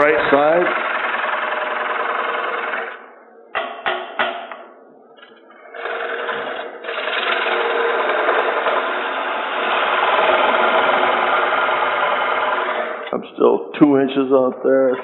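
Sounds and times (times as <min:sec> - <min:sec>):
lathe tool cutting wood: 0:00.0 - 0:03.0, 0:05.7 - 0:13.1
wood knocks: 0:03.5 - 0:04.6.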